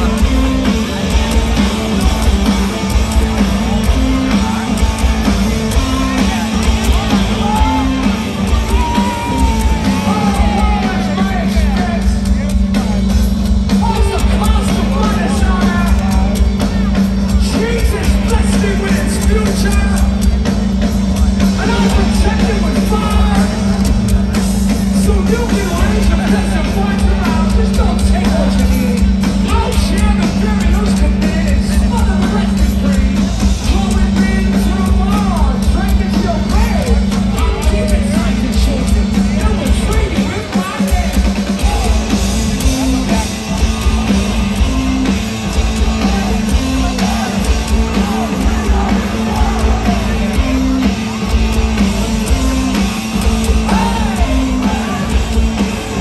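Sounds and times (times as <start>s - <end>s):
live rock band playing: 0.0s - 56.0s
person singing and shouting: 3.7s - 13.0s, 53.5s - 56.0s.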